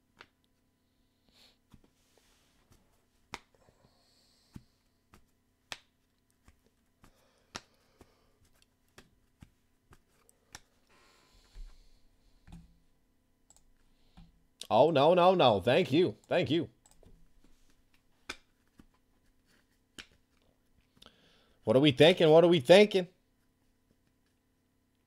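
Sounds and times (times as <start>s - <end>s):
soft rustle: 1.6s - 3.3s.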